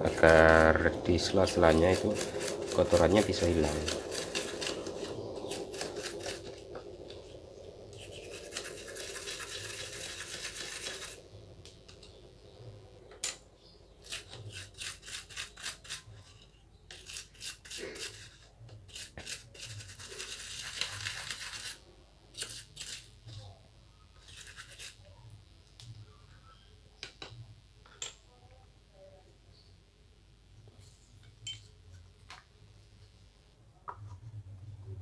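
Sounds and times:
paintbrush bristles scrubbing: 0.0 - 6.6, 8.0 - 11.2, 14.0 - 21.8, 24.2 - 25.1.

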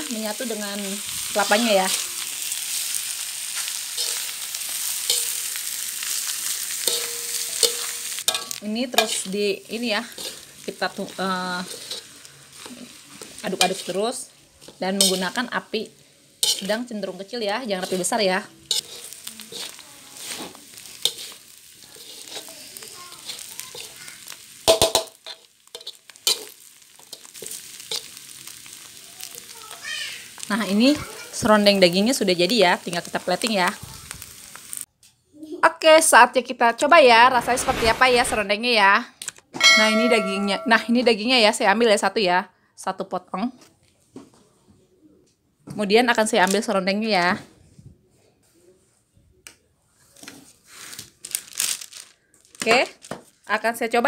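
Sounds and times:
meat sizzling in a wok: 0.0 - 34.9, 39.6 - 41.6
metal spatula scraping a pan: 3.6 - 15.6, 16.4 - 28.2, 39.6 - 40.9.

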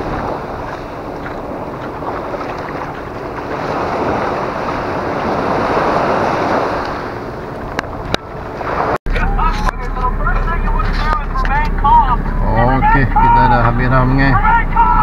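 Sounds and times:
small waves washing on sand: 0.0 - 7.7
wind buffeting microphone: 0.0 - 15.0.

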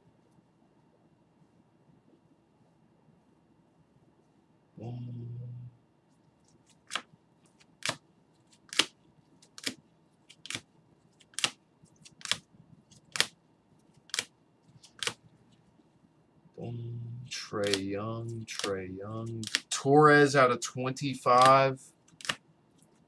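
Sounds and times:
plastic card holders clicking: 17.6 - 19.7, 21.3 - 22.4.

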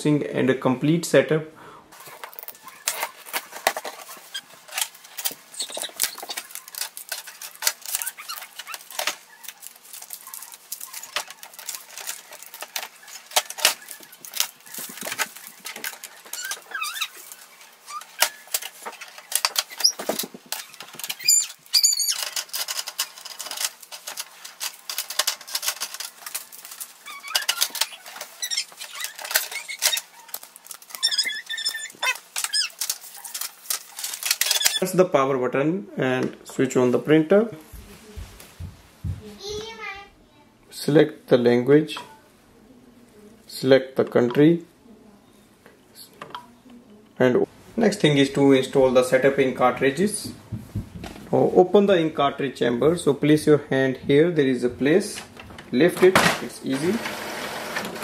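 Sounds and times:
packing tape and film crackling: 2.0 - 35.0
plastic trays clicking and knocking: 2.2 - 17.2, 22.2 - 34.8, 50.3 - 51.3
short squeaks: 4.0 - 23.7, 26.1 - 34.9.

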